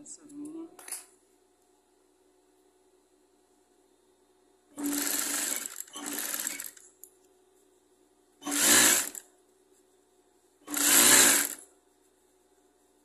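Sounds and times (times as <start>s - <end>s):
sewing machine stitching: 4.8s - 6.8s, 8.4s - 9.2s, 10.7s - 11.6s.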